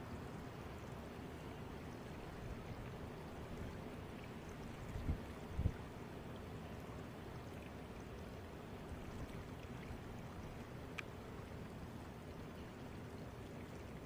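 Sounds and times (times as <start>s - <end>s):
flowing water rushing: 0.0s - 14.0s
faint click: 10.9s - 11.2s.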